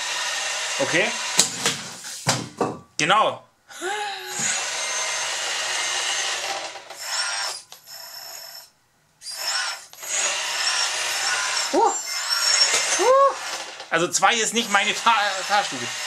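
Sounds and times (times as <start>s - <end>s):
high-pitched electric motor whine: 4.3s - 13.6s, 14.8s - 16.0s.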